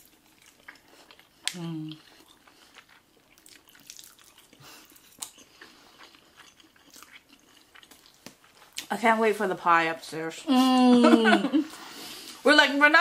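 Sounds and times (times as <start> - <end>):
chewing and wet mouth sounds: 0.0 - 8.9.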